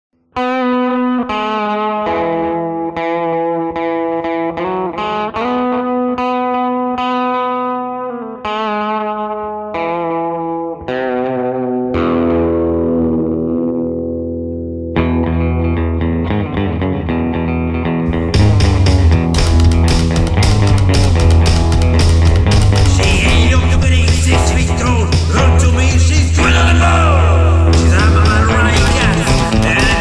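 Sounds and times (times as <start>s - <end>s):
overdriven electric guitar: 0.2s - 30.0s
deep bass: 18.0s - 30.0s.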